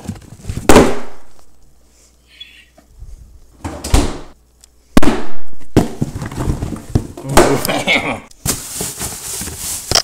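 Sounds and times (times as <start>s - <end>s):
sharp bangs: 0.7s - 1.3s.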